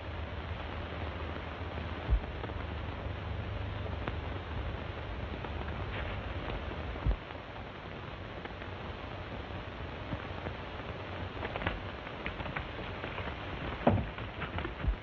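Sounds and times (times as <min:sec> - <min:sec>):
film soundtrack hiss and crackle: 0:00.0 - 0:15.0
faint clicks: 0:10.1 - 0:15.0.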